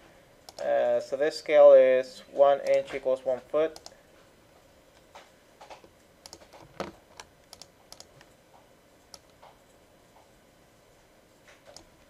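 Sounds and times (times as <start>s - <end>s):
computer mouse and key clicks: 0.5s - 0.7s, 2.6s - 3.0s, 3.8s - 4.0s, 5.0s - 8.3s, 9.1s - 10.3s, 11.5s - 12.0s.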